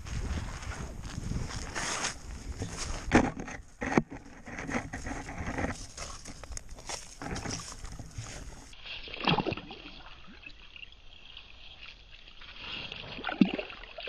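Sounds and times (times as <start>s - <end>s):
water sloshing and splashing: 3.1s - 14.0s.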